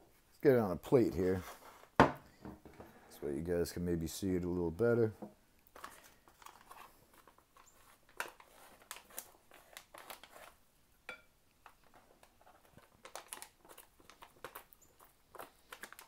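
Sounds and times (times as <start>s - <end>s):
food pouch crinkling: 5.7s - 10.6s, 11.6s - 16.0s
spoon scraping and tapping: 11.1s - 11.3s.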